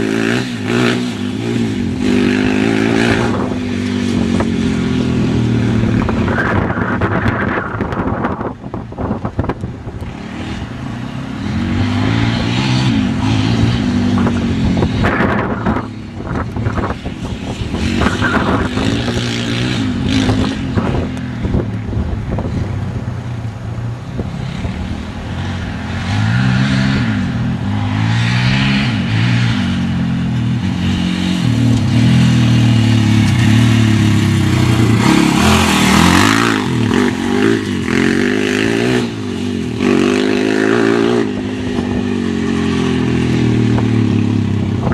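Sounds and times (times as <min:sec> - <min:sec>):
quad engine revving: 0:00.0 - 0:22.6, 0:24.2 - 0:44.9.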